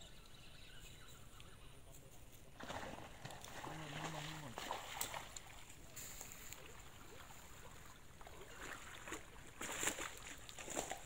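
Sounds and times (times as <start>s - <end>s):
shallow water splashing: 2.5s - 11.0s.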